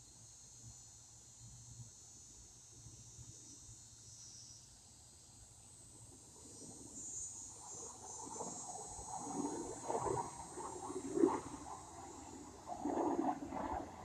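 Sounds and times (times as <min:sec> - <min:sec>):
crickets chirping: 0:00.0 - 0:14.0.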